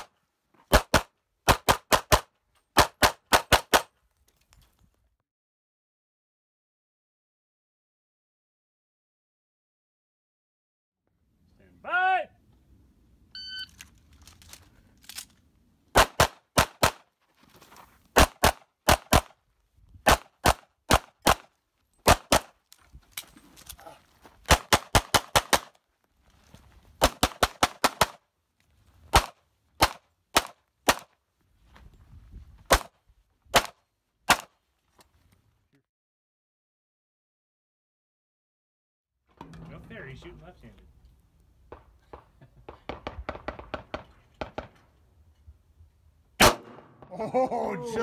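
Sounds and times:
shot timer beep: 13.4 - 13.7
handgun shots: 46.4 - 46.9.

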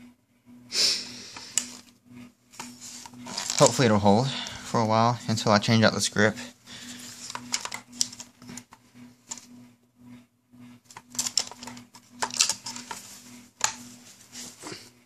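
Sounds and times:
rifle clicks and metallic rattles: 10.9 - 13.8.

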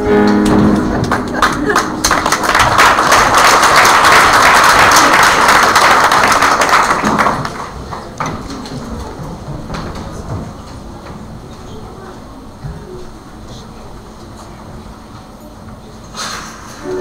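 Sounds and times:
audience applauding: 0.3 - 8.8.

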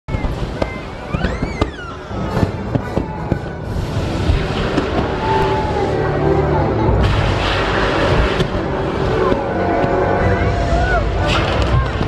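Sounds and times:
firework whistle: 0.1 - 5.8
fireworks bangs and crackles: 0.1 - 6.1, 6.9 - 12.0.

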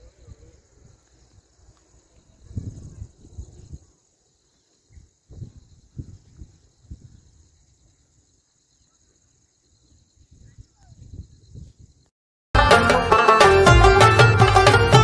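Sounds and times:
wind rumble on microphone: 0.0 - 3.9, 4.9 - 7.8, 9.9 - 12.1
insects chirping chorus: 0.0 - 12.1.

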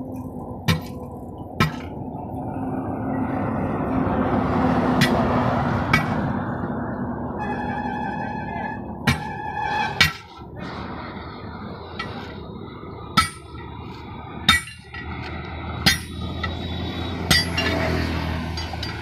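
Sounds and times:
metal clangs of tyre levers: 17.3 - 17.9, 18.5 - 19.0.

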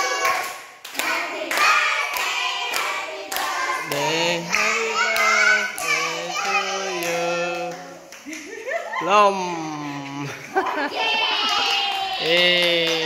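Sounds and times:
party song with held notes: 0.0 - 8.2
hands clapping: 7.0 - 8.6, 11.4 - 13.0.

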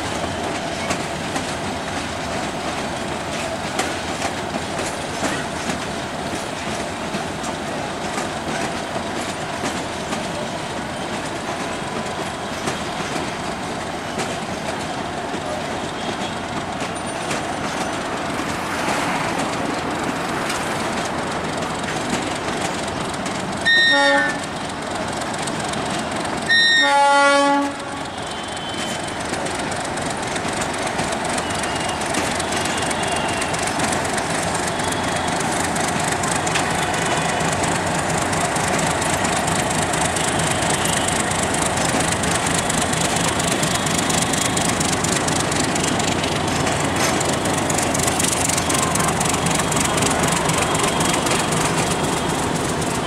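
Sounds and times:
train rumbling and clattering: 0.0 - 53.0
locomotive horn blasts: 23.6 - 24.5, 26.5 - 29.1.

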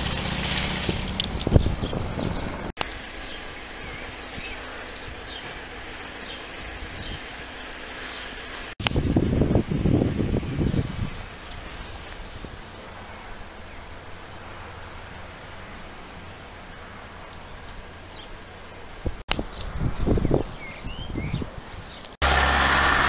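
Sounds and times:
cricket chirping: 0.7 - 5.4, 8.8 - 19.2.

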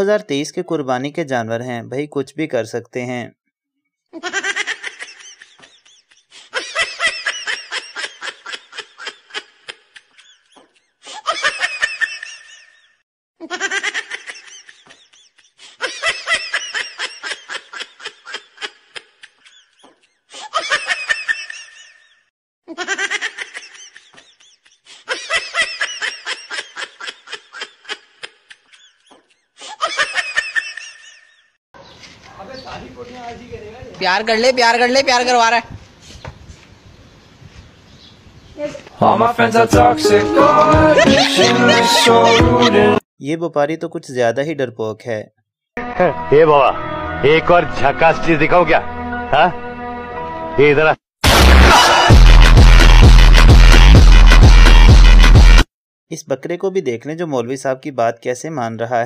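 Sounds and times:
person laughing: 4.1 - 12.8, 13.4 - 22.1, 22.7 - 31.4, 40.1 - 43.0, 51.5 - 53.0.

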